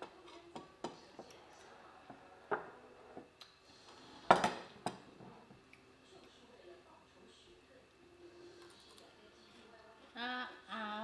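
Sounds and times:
plates and spoon clinking: 4.2s - 5.1s.

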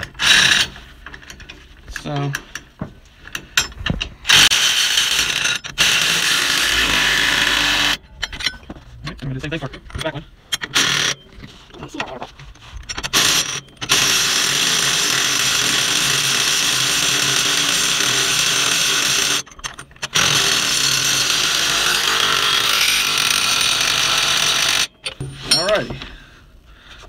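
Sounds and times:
cordless power tool tightening nuts: 0.1s - 0.7s, 10.6s - 11.2s, 12.9s - 25.2s.

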